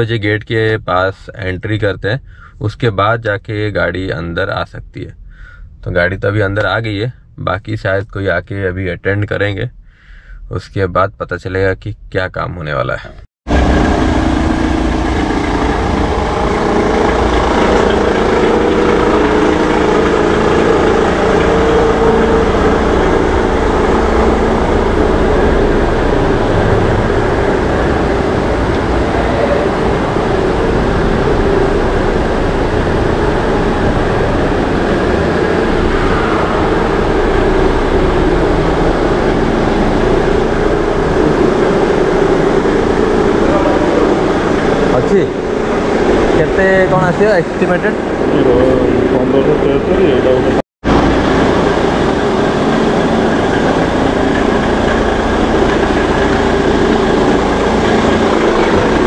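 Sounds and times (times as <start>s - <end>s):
car engine running: 13.5s - 59.0s.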